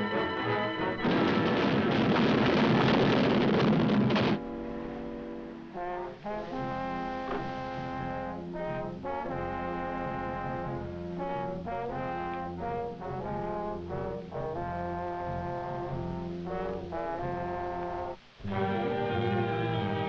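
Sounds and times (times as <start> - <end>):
brass-heavy orchestral chords: 4.4 - 20.0.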